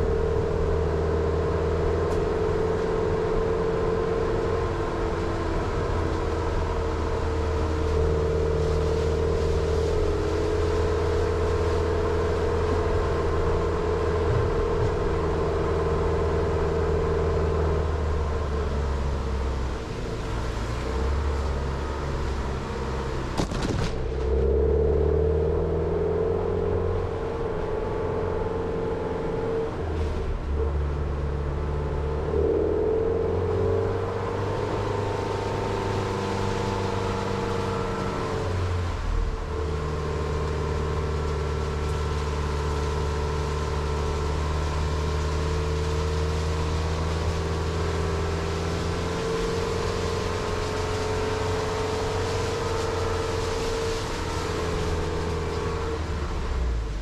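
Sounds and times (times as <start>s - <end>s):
car engine running: 0.0s - 32.6s, 33.3s - 57.0s
tyre noise on wet road: 0.0s - 57.0s
branches brushing car: 6.6s - 15.2s, 20.3s - 24.6s, 39.2s - 57.0s.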